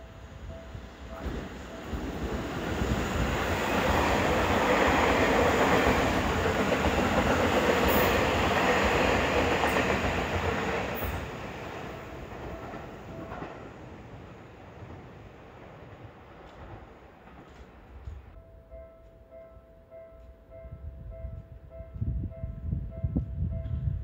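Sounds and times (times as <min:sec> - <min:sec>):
train passing close by: 0:00.0 - 0:24.0
train wheels clicking: 0:01.1 - 0:13.8, 0:16.3 - 0:18.4.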